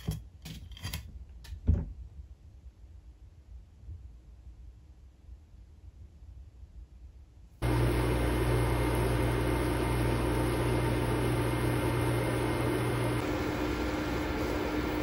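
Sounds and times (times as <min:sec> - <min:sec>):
induction cooktop fan and hum: 0:07.6 - 0:15.0.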